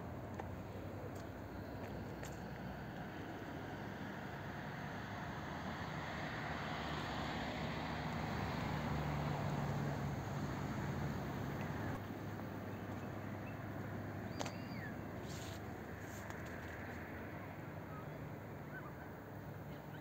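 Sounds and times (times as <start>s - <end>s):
distant traffic hum: 0.0s - 20.0s.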